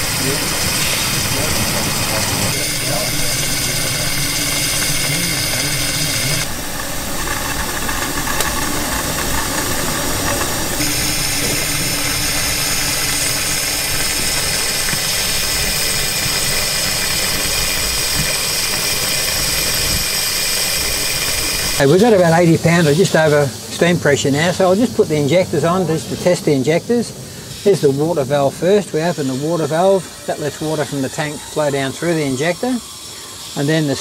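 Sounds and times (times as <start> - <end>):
locomotive steam hissing: 0.0 - 34.0.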